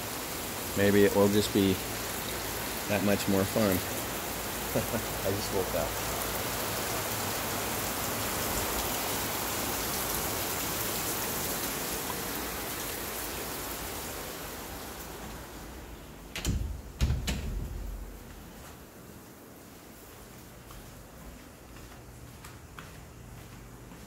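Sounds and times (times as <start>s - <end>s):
heavy rain hissing: 0.0s - 16.6s.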